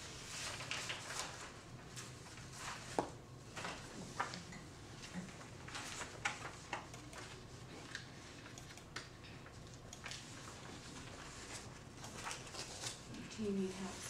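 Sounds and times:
paper rustling: 0:00.0 - 0:08.3, 0:10.0 - 0:14.0
room hum: 0:00.0 - 0:14.0.

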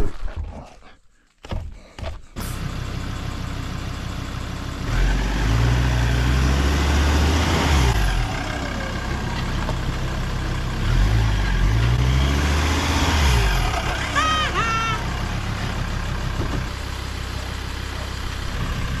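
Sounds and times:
car engine revving under load: 0:04.7 - 0:19.0.

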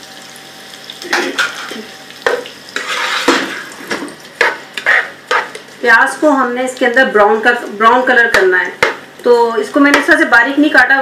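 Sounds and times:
onions frying in oil: 0:00.0 - 0:11.0
spoon scraping and knocking pot: 0:01.1 - 0:05.6.

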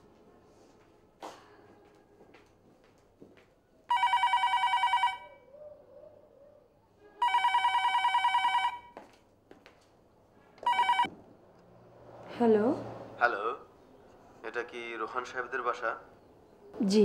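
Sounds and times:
telephone ringing electronically: 0:03.9 - 0:05.3, 0:07.2 - 0:09.0, 0:10.6 - 0:11.1.

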